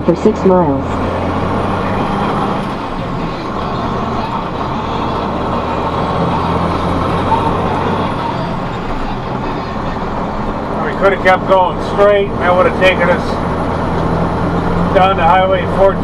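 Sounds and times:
road and tyre noise: 0.0s - 16.0s
truck engine droning: 0.0s - 16.0s.

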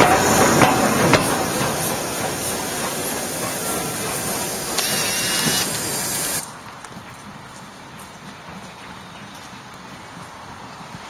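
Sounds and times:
locomotive steam hissing: 0.0s - 6.5s.

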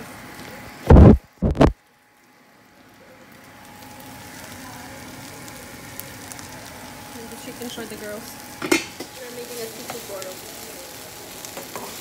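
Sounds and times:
microphone handling thuds: 0.9s - 1.8s.

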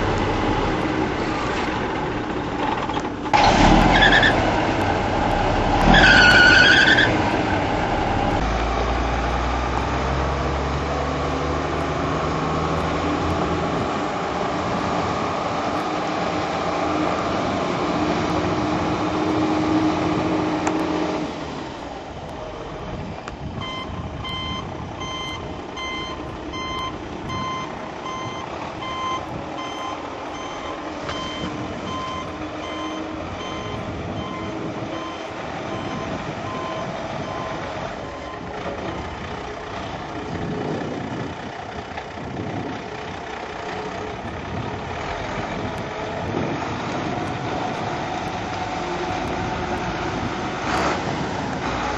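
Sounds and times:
diesel truck engine: 0.0s - 51.9s
backup alarm beeping: 23.6s - 37.6s.

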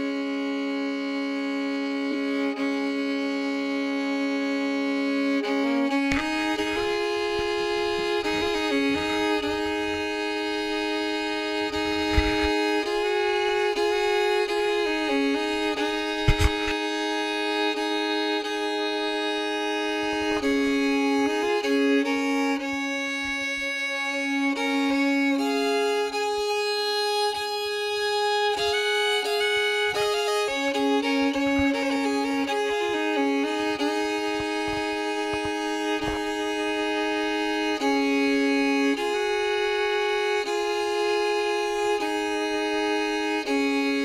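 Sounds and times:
violin playing long notes: 0.0s - 44.0s
brief click: 16.1s - 16.8s.

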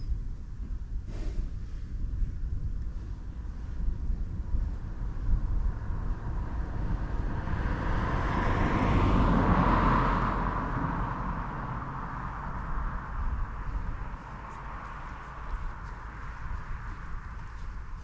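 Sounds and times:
wind rumble on microphone: 0.0s - 18.0s
vehicle passing by: 4.9s - 18.0s.

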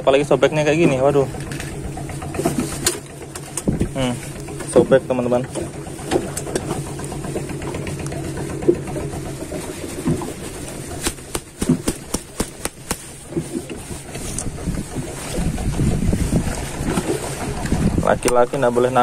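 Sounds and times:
engine humming: 0.0s - 19.0s
handling clicks and knocks: 0.8s - 15.0s
wind rumble on microphone: 3.5s - 4.9s, 13.2s - 19.0s.

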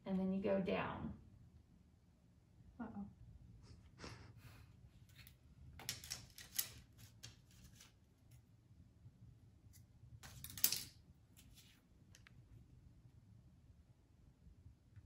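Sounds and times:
paper rustling and crinkling: 5.1s - 8.1s.

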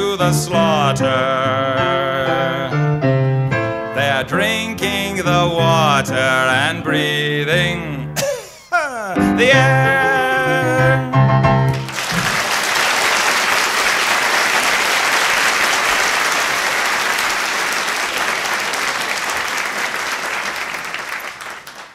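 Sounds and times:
audience applauding: 11.7s - 21.9s.

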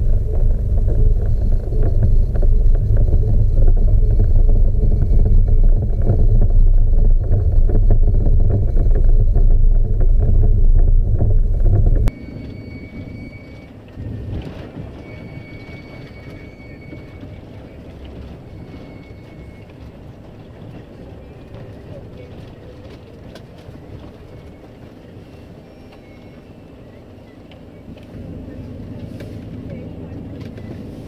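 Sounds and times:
engine and road rumble: 0.0s - 31.0s.

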